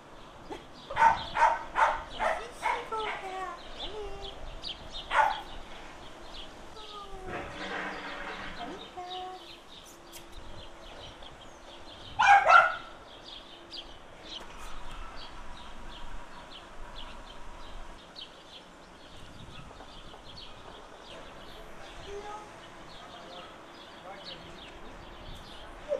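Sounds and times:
dog barking: 0:01.0 - 0:03.2, 0:05.1 - 0:05.5, 0:12.2 - 0:13.0.

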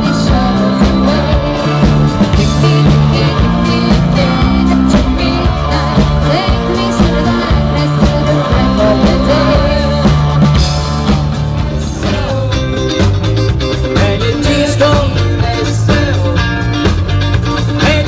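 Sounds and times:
person singing: 0:00.0 - 0:13.1, 0:13.8 - 0:16.7, 0:17.6 - 0:18.0
amplified guitar: 0:00.0 - 0:18.0
drum beat: 0:00.0 - 0:18.0
live band playing upbeat song: 0:00.0 - 0:18.0.

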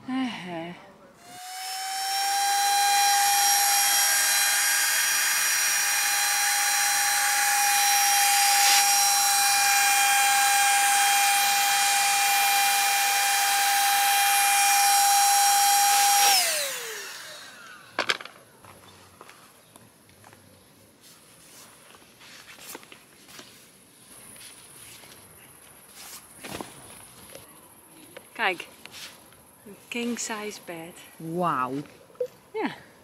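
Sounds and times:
electric air pump whining: 0:01.2 - 0:18.3.

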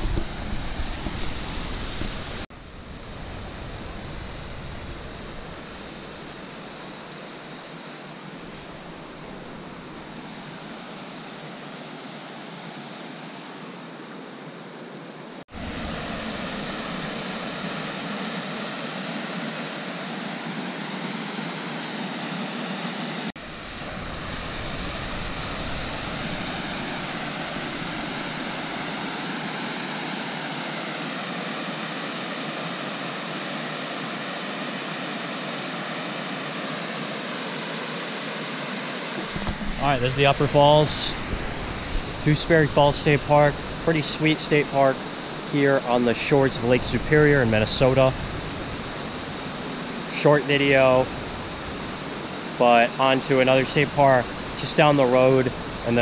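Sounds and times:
waterfall rushing over rocks: 0:36.9 - 0:56.0.

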